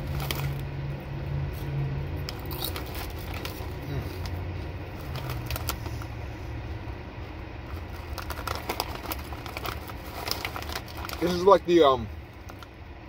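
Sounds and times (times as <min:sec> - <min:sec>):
chewing potato chips: 0:00.0 - 0:00.7, 0:01.5 - 0:06.2, 0:07.7 - 0:11.5
foil bag crinkling: 0:00.0 - 0:00.7, 0:02.2 - 0:06.1, 0:07.6 - 0:12.8
steady low hum: 0:00.0 - 0:13.0.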